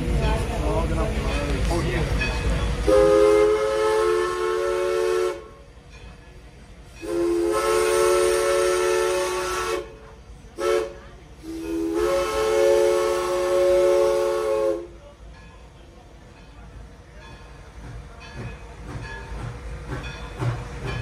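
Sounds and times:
steam locomotive whistle blasts: 2.8s - 5.7s, 7.0s - 10.0s, 10.6s - 15.0s.

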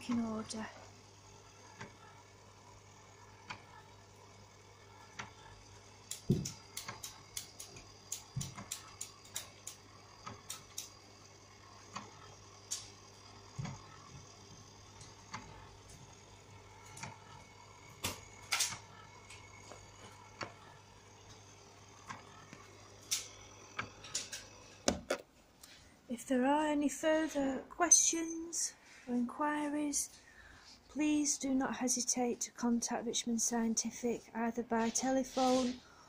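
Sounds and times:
roller mixer motor hum: 0.0s - 26.0s
light clicks and ticks: 5.1s - 11.0s.

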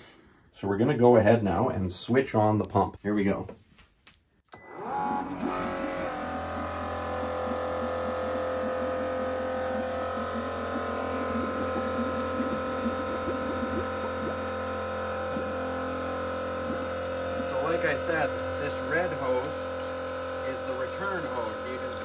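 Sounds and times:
pump motor whining and humming: 4.5s - 22.0s
faint liquid trickling into bucket: 6.6s - 22.0s.

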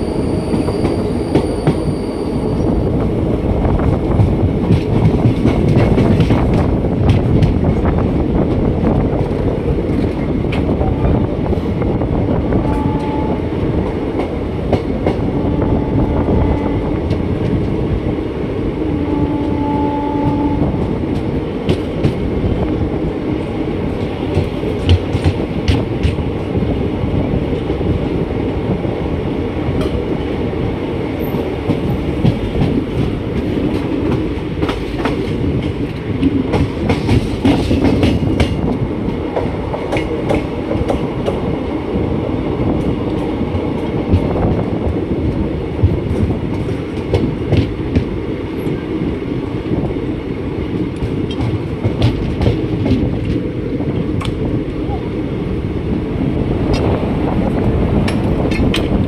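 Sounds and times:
train wheels rumbling: 0.0s - 59.0s
wheels clicking over rail joints: 56.7s - 59.0s.

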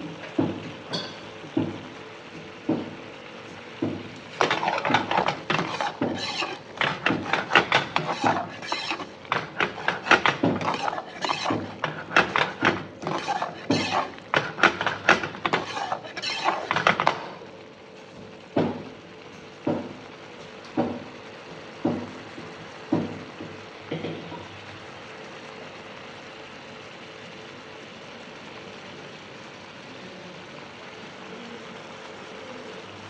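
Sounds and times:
metal ladle scraping pan: 4.4s - 17.4s.

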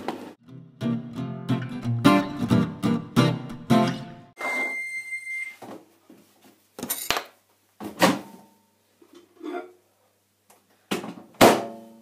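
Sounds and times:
microwave beeping: 4.4s - 5.6s.

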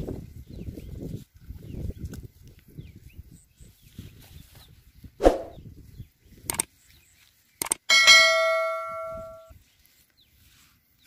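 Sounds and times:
bright bell ding: 7.9s - 9.5s.

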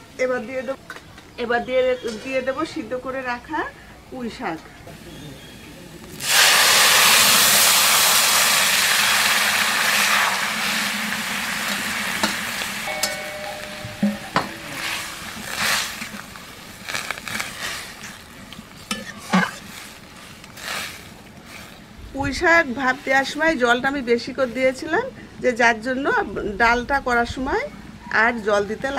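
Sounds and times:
loud sizzle in hot pan: 6.2s - 19.8s
metal spatula scraping pan: 12.2s - 16.1s, 18.8s - 20.0s.

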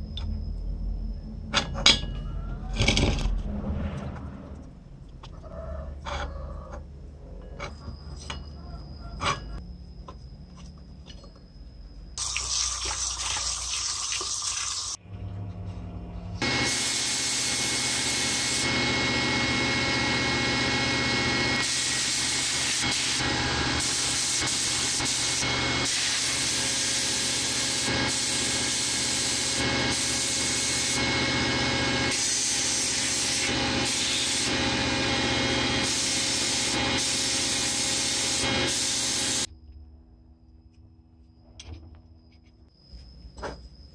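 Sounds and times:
sandblaster hissing: 16.4s - 18.9s, 21.5s - 39.5s.

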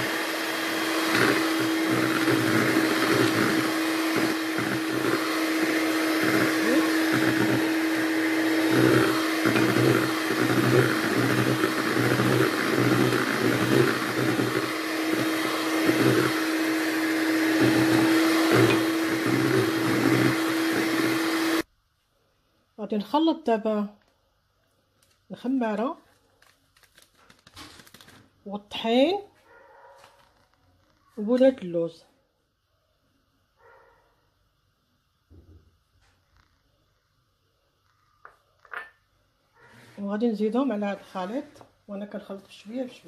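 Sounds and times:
electric hand mixer running: 0.0s - 21.7s.

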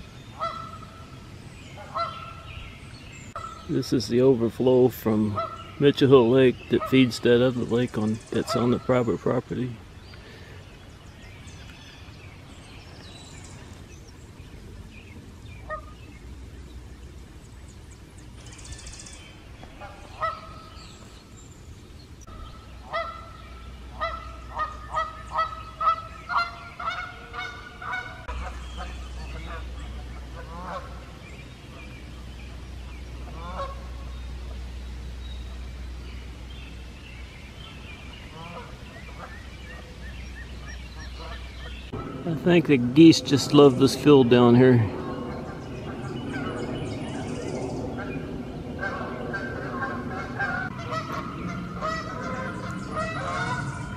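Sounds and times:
geese honking: 0.3s - 1.2s, 1.8s - 2.6s, 5.0s - 9.4s, 15.6s - 16.0s, 19.8s - 20.8s, 22.3s - 32.0s, 33.2s - 34.6s, 38.2s - 40.0s, 40.6s - 46.7s, 47.9s - 53.9s.

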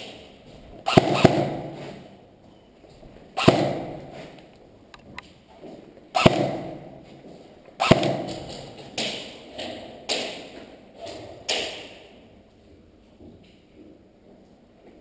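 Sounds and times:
airsoft gun shots echoing: 0.8s - 2.1s, 3.4s - 4.2s, 6.2s - 7.0s, 7.8s - 9.4s.

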